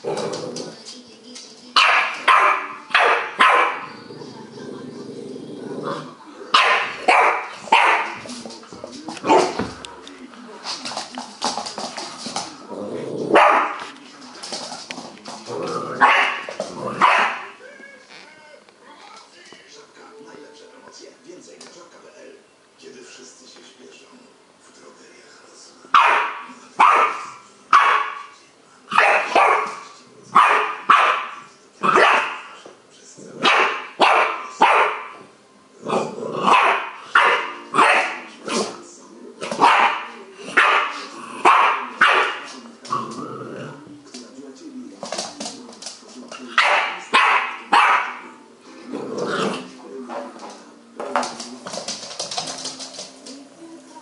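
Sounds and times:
puppy growling: 0.0s - 0.9s, 3.8s - 6.4s, 12.0s - 13.9s, 14.9s - 17.5s, 35.8s - 36.9s, 40.9s - 44.1s, 48.7s - 49.8s
puppy barking: 1.8s - 3.9s, 6.6s - 8.2s, 13.3s - 13.8s, 16.0s - 17.6s, 26.0s - 28.3s, 28.9s - 32.4s, 33.4s - 35.2s, 36.4s - 38.3s, 39.6s - 42.5s, 46.6s - 48.3s.

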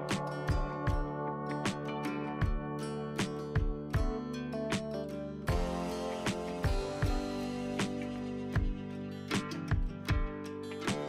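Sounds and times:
instrumental music: 0.0s - 11.0s
sharp percussive hits: 0.1s - 2.6s, 3.2s - 11.0s.

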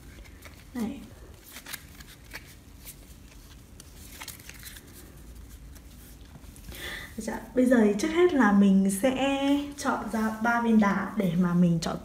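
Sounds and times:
cards clicking and rustling: 0.0s - 6.6s.

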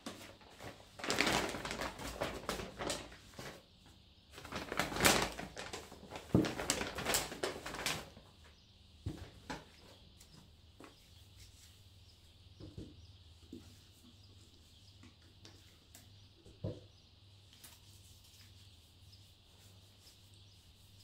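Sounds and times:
paper bag rustling: 0.0s - 3.6s, 4.3s - 8.2s.

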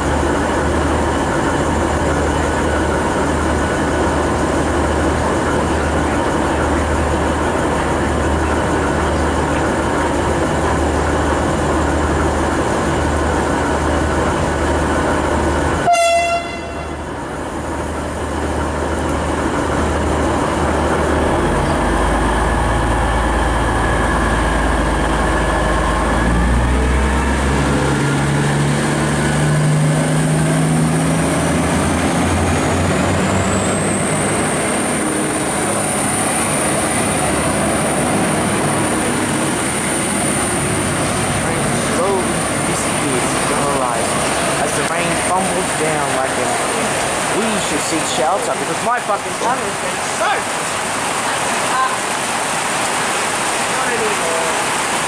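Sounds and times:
diesel train engine: 0.0s - 55.0s
train horn toot: 15.8s - 17.1s.

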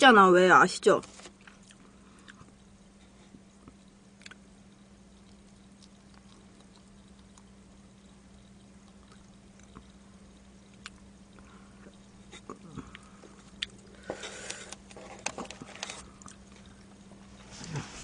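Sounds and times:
steady low hum: 0.0s - 18.0s
mouth chewing sounds: 1.4s - 14.8s.

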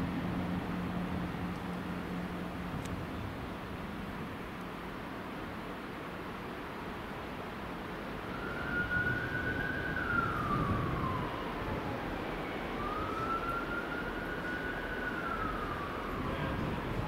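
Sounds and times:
siren wailing: 8.3s - 17.0s.

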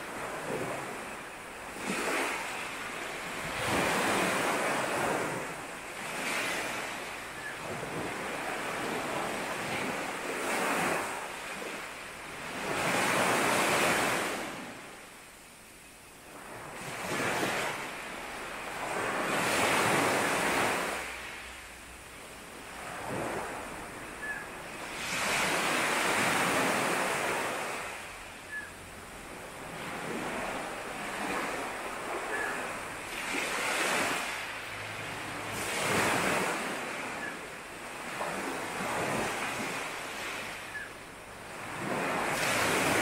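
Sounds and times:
sea waves breaking: 0.0s - 15.0s, 22.6s - 43.0s
faint bird chirps: 7.2s - 7.7s, 24.0s - 24.8s, 28.3s - 28.9s, 32.2s - 32.8s, 37.0s - 37.6s, 40.5s - 41.1s.

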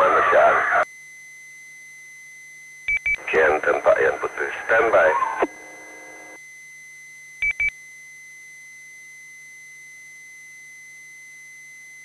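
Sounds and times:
low radio hum: 0.0s - 0.8s, 3.2s - 6.4s
short electronic radio beeps: 2.9s - 6.4s.

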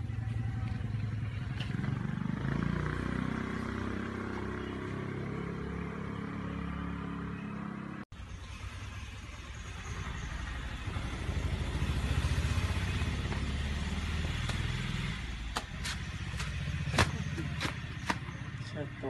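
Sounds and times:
motorcycle engine passing: 0.4s - 19.0s.

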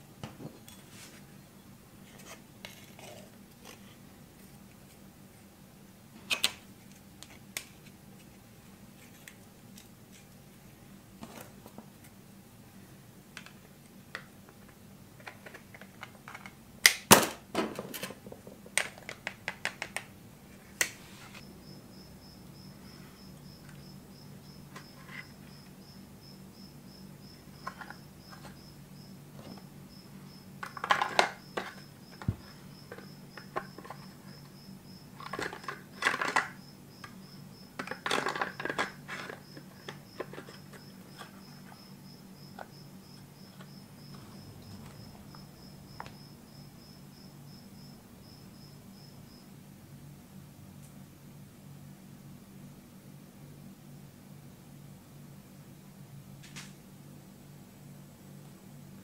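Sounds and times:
plastic clicks and clatter: 35.2s - 36.6s, 37.8s - 41.3s
low hum: 43.8s - 46.8s.

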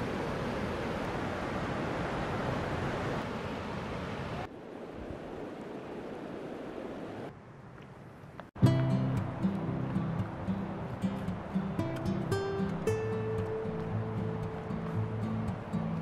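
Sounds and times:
waterfall rushing: 9.0s - 16.0s.

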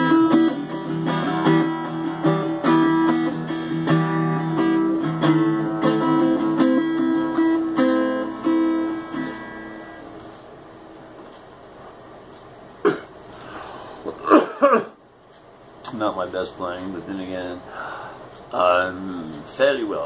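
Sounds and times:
acoustic guitar chords: 0.0s - 10.4s
man coughing: 12.8s - 13.2s, 14.1s - 15.0s.

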